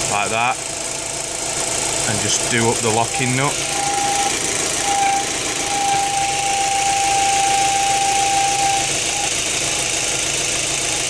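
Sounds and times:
car engine idling: 0.0s - 11.0s
thin steady whistle: 3.1s - 10.1s.

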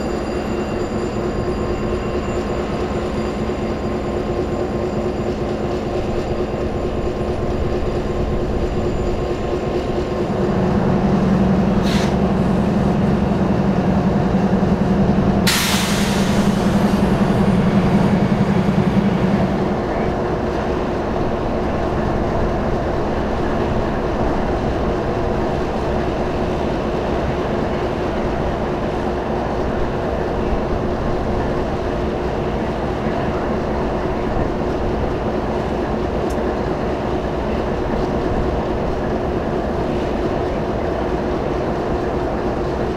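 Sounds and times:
locomotive engine hum: 0.0s - 42.9s.

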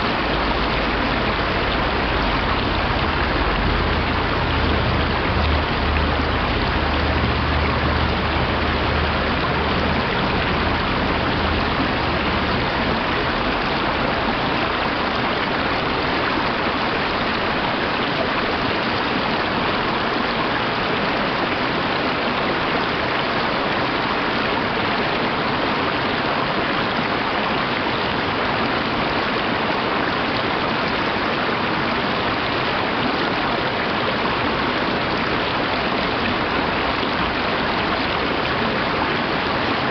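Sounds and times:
stream rushing over rocks: 0.0s - 39.9s
low rumble: 0.8s - 13.6s.

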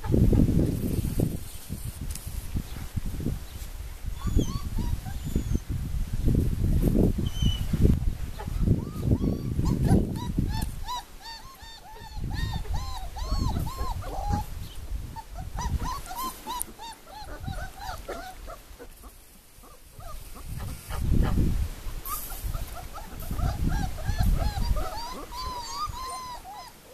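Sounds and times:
puppies whimpering squeaks: 4.2s - 5.7s, 8.4s - 14.5s, 15.2s - 18.6s, 22.1s - 26.9s.

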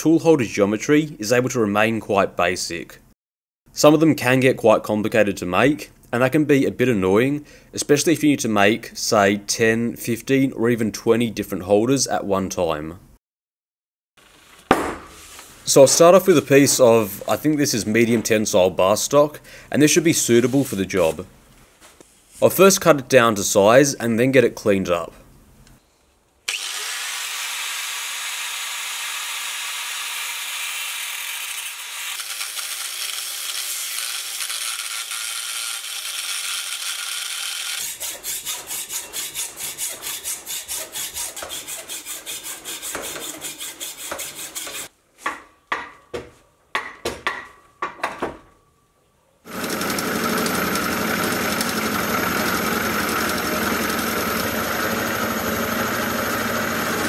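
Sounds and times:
hacksaw cutting steel: 26.5s - 44.9s, 49.5s - 57.0s
milling machine cutting steel: 49.5s - 57.0s.

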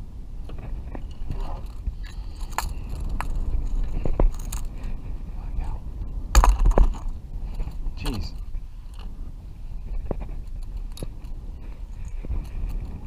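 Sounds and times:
steady low rumble: 0.0s - 13.0s
fishing tackle clicks and scrapes: 0.5s - 5.0s, 9.9s - 13.0s.

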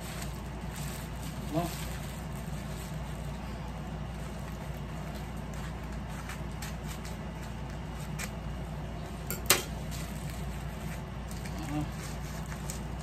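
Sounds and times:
sharp crackle: 0.0s - 3.3s
steady low hum: 0.0s - 13.0s
wrapping rustling and crinkling: 0.0s - 13.0s.

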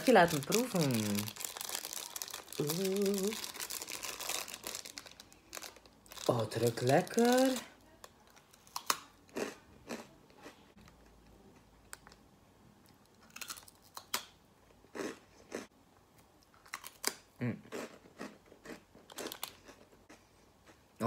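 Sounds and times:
rice crackers crunching: 0.0s - 7.6s, 13.2s - 14.3s, 16.5s - 20.2s.

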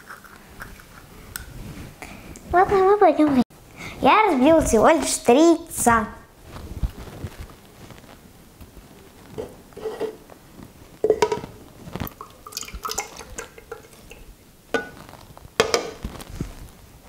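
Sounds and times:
glass bowl and jug knocking: 11.0s - 11.5s, 15.6s - 16.0s
liquid trickling and dripping: 12.1s - 14.4s.

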